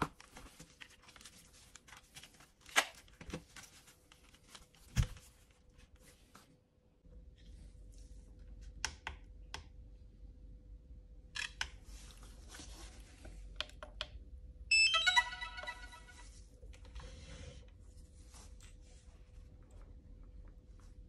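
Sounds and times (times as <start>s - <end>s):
electronic beeps: 14.7s - 16.2s.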